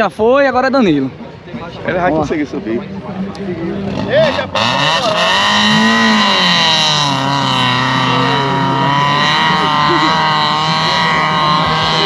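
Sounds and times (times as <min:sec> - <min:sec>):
engine revving hard: 0:03.7 - 0:12.0.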